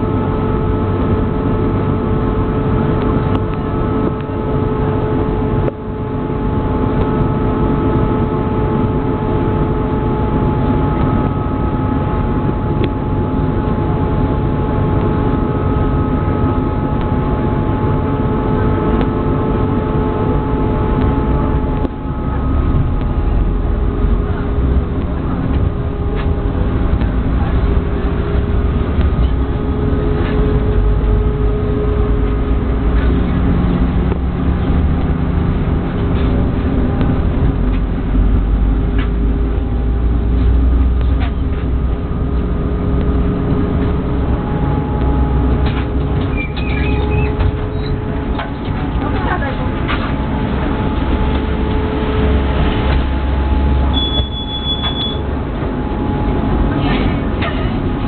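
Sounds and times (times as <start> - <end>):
motor hum: 0.0 - 58.0
tram wheels rumbling on rails: 0.0 - 58.0
thin high whine: 40.9 - 58.0.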